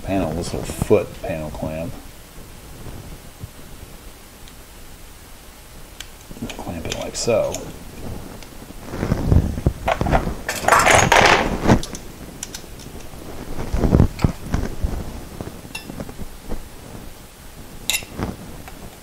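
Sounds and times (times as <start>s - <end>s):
metal tools clinking and rattling: 10.5s - 11.5s.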